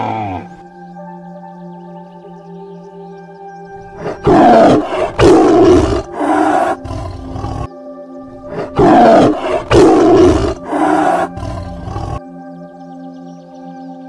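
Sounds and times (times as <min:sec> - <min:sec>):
tiger roaring: 0:00.0 - 0:00.6, 0:03.8 - 0:07.7, 0:08.3 - 0:12.2
soft background music: 0:00.0 - 0:14.0.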